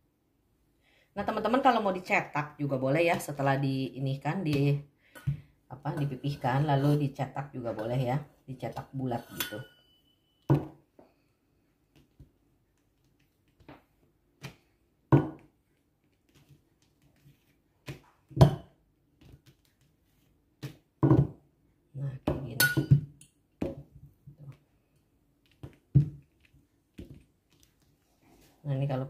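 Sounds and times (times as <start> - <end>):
metal rolling pin rolling dough: 5.8 - 10.0.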